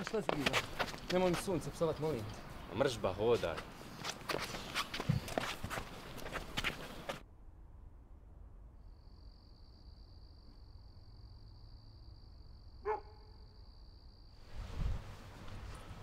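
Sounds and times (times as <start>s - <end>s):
dog bark: 12.8s - 13.4s.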